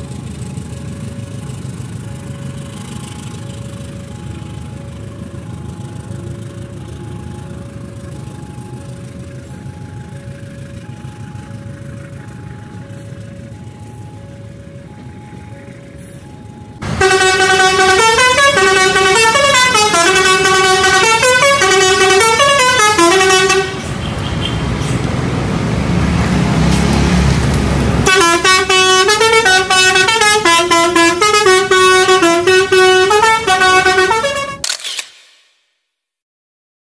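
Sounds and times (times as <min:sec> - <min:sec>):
train coaches rumbling past: 0:00.0 - 0:34.6
musical horn playing a tune: 0:16.8 - 0:24.7, 0:28.0 - 0:34.6.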